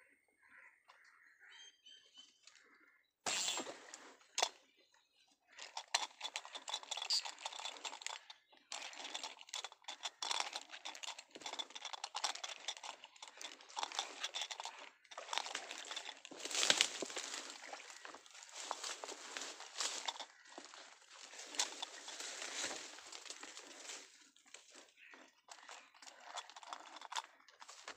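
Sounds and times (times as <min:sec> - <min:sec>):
leaves and stems rustling: 0:05.7 - 0:24.9.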